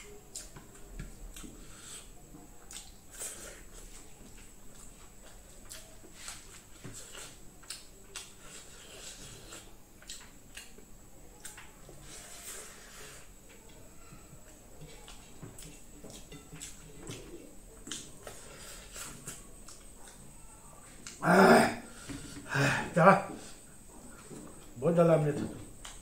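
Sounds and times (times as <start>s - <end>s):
wet chewing and lip-smacking: 0.0s - 1.6s, 2.6s - 11.7s, 14.4s - 20.3s.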